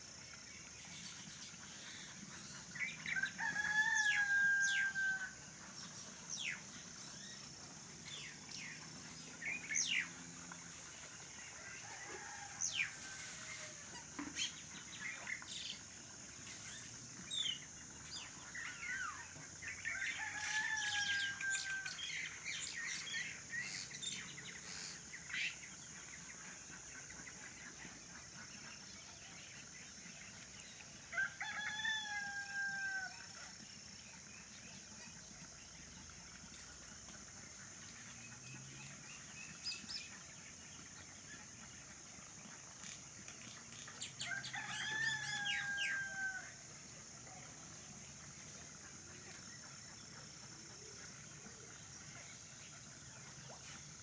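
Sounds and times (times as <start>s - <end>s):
steady high-pitched hiss: 0.0s - 54.0s
rooster crowing: 3.2s - 5.4s, 20.2s - 22.0s, 31.1s - 33.2s, 44.2s - 46.6s.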